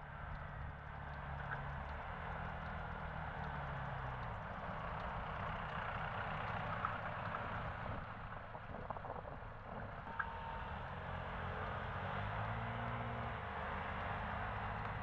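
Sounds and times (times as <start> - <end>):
idling vehicle engines hum: 0.0 - 15.0
road traffic: 9.7 - 15.0.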